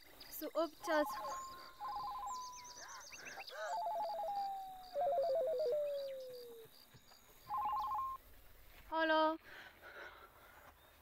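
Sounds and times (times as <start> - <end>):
faint insect chirping: 0.0 - 8.2.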